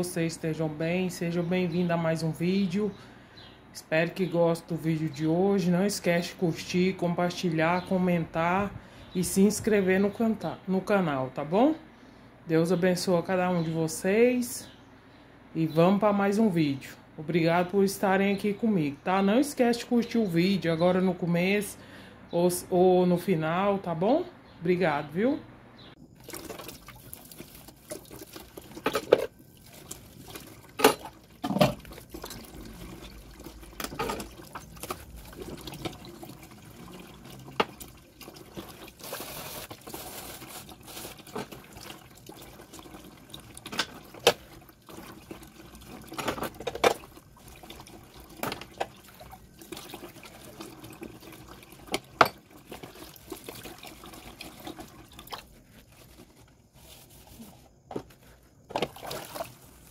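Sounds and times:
tap water running: 26.1 - 56.3, 58.7 - 59.9
dishes clinking: 52.2 - 52.4.

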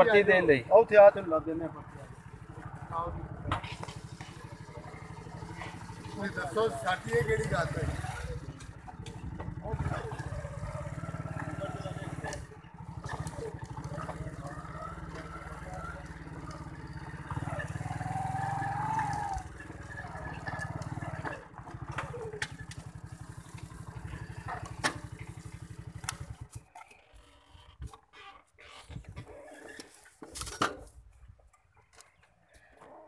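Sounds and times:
small motorcycle engine running: 0.0 - 29.8.

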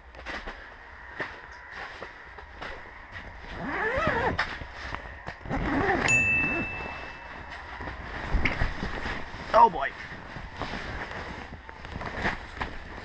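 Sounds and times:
steady high beep: 6.1 - 7.3.

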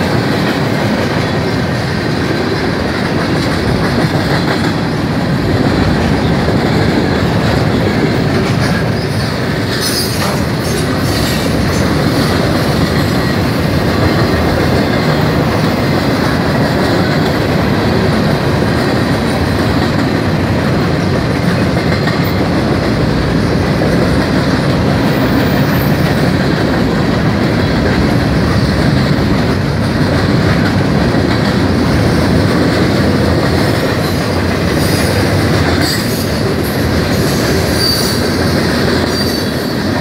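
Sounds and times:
freight train rumble and clatter: 0.0 - 40.0
train wheel squeal: 8.6 - 13.6, 25.1 - 26.3, 34.2 - 40.0.

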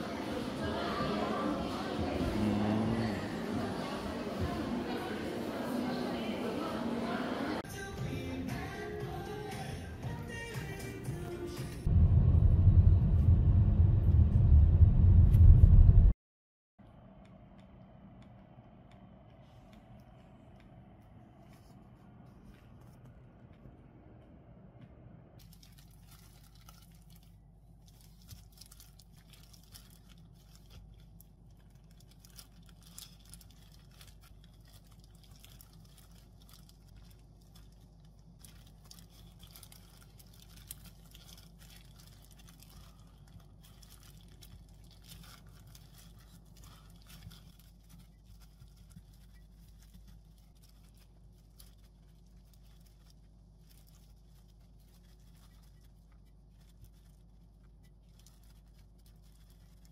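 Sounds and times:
steady low hum: 11.8 - 16.2
plastic gloves crinkling: 25.4 - 59.9.

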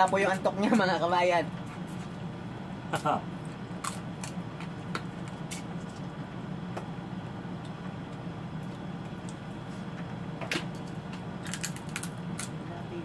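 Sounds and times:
steady low hum: 0.0 - 13.0
crab shells cracking: 11.4 - 12.6.

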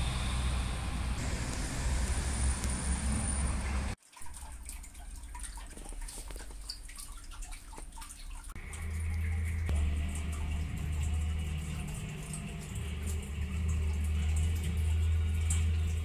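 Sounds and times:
low rumble: 0.0 - 4.0, 8.6 - 16.0.

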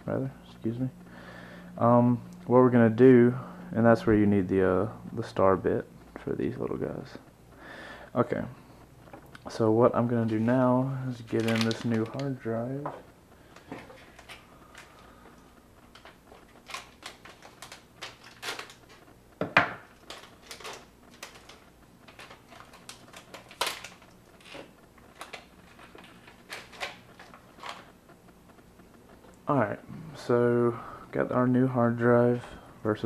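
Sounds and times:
light clicks and crinkles: 8.6 - 30.3.

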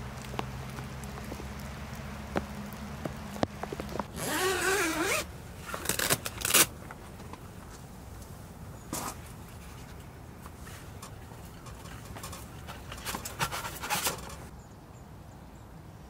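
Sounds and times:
short zipper tugs: 3.8 - 6.7
tent zipper pulled: 3.8 - 6.7.

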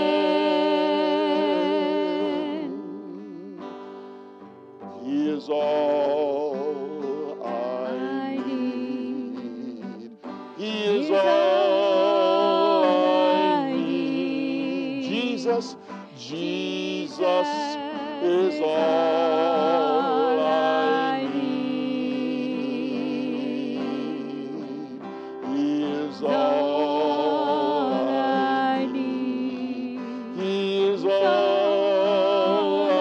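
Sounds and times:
instrumental accompaniment: 0.0 - 33.0
person singing with vibrato: 0.0 - 33.0
singer breathing: 3.7 - 4.6, 10.2 - 10.6, 15.7 - 16.2, 25.0 - 25.5, 30.0 - 30.4.

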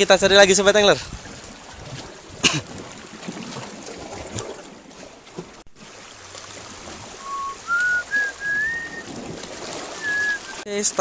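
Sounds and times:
small waves lapping on rock: 0.0 - 11.0
wind: 0.0 - 11.0
rising whistle: 7.2 - 9.1, 10.0 - 10.6.

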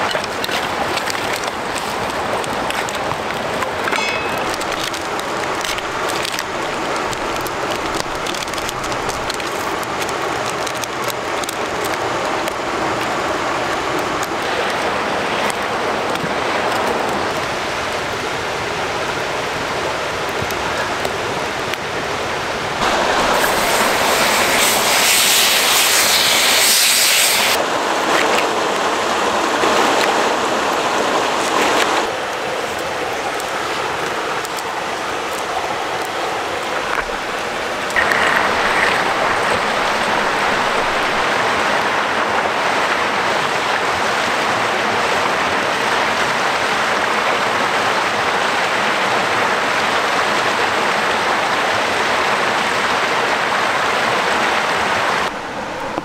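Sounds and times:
brook water rushing: 0.0 - 56.0.

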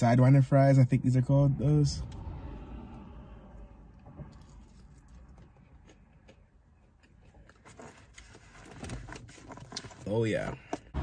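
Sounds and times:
low steady hum: 0.0 - 8.8.

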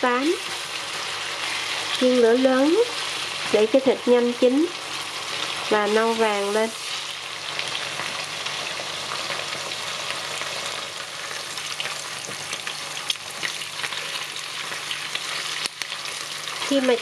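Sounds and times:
pork sizzling in a pan: 0.0 - 17.0
oil popping and crackling: 5.4 - 17.0.

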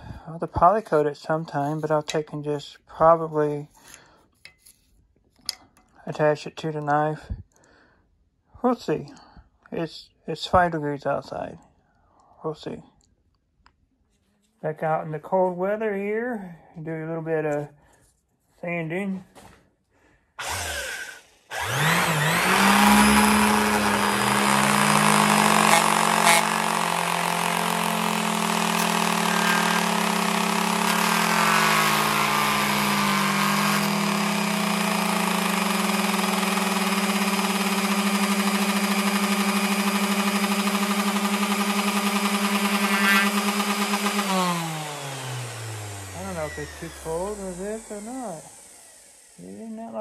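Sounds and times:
electric sander running: 20.4 - 50.0.

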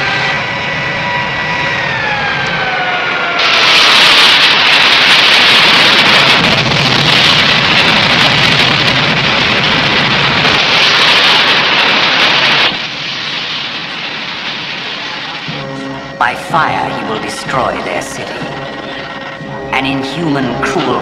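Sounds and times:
rocket exhaust blast: 0.0 - 16.3.

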